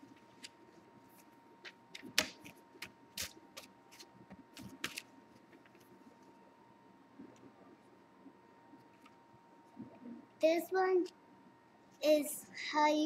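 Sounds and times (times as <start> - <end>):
faint high hum: 0.0 - 13.0
paper rustling and crackling: 0.1 - 6.3.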